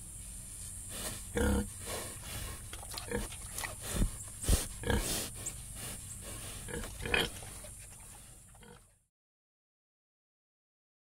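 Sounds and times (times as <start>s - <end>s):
pigs grunting: 1.0s - 9.0s.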